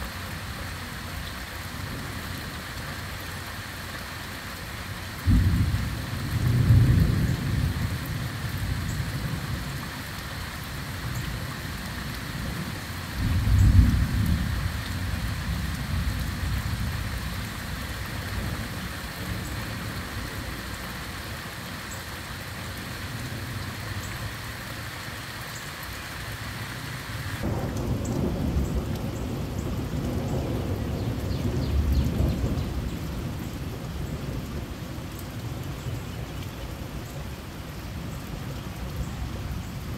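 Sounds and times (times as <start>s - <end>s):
heavy rain falling: 0.0s - 39.9s
rolls of thunder: 27.4s - 33.4s.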